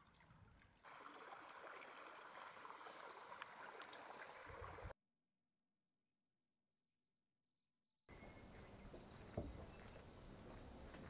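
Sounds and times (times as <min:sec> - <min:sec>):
water trickling: 0:00.0 - 0:04.9.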